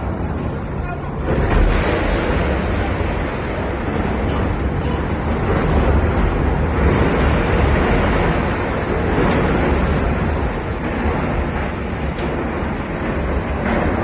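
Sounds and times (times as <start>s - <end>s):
churning wake: 0.0s - 14.0s
ship hull grinding into cranes: 0.0s - 14.0s.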